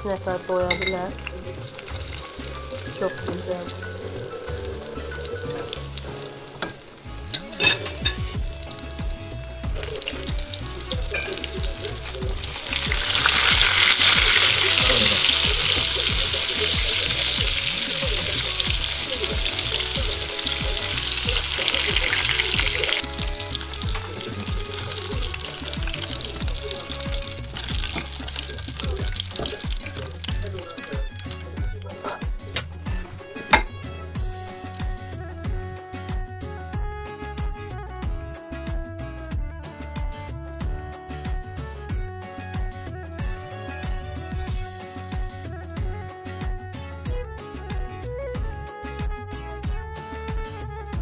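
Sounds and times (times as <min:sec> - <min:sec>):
chicken sizzling in hot oil: 0:00.3 - 0:35.2.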